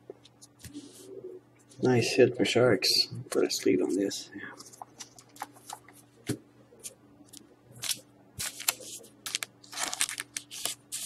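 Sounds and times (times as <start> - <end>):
plastic card sleeve crinkling: 4.6 - 6.0, 7.3 - 11.0.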